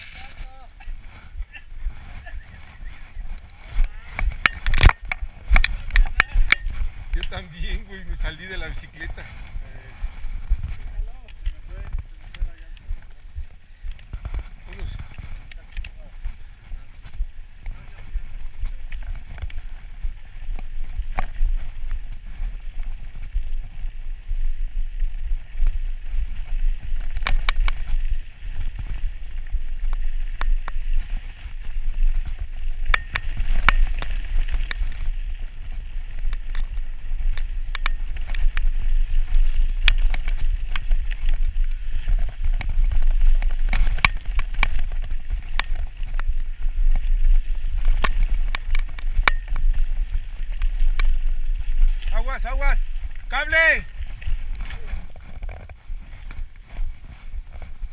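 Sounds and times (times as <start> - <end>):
bike rattling over bumps: 0.0 - 57.9
wind buffeting microphone: 0.0 - 57.9.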